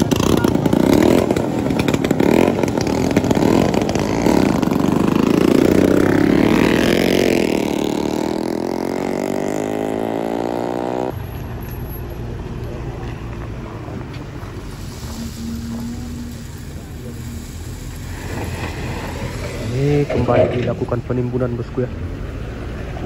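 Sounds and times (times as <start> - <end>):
motorcycle engine revving: 0.0 - 11.6.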